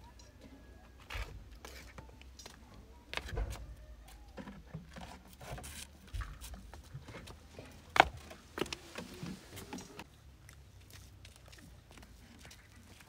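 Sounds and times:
footsteps: 0:01.0 - 0:10.1.

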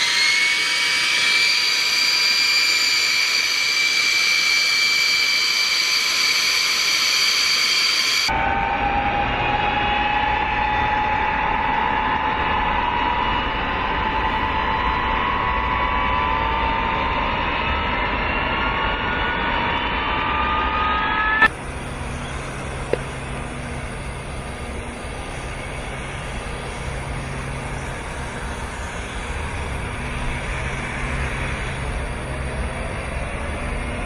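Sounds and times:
jet engines spooling up: 0:00.0 - 0:34.0
whines rising in pitch: 0:00.0 - 0:34.0
steady low hum: 0:11.2 - 0:34.0.

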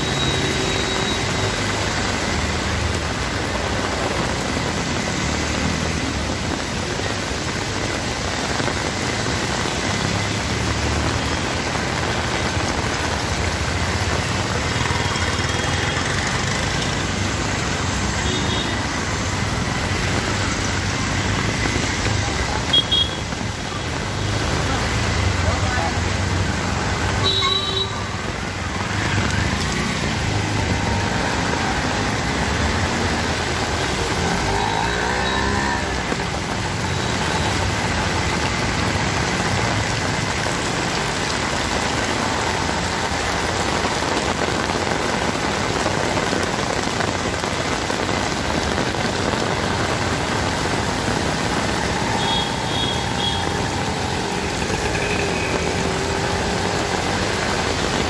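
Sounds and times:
heavy rain on wet street: 0:00.0 - 0:58.0
vehicle engines passing: 0:00.0 - 0:58.0.

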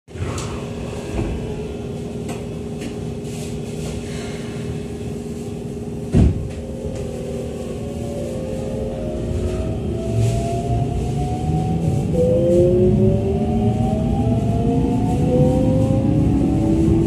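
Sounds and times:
train electrical equipment humming: 0:00.1 - 0:17.0
loud thump: 0:06.1 - 0:06.5.

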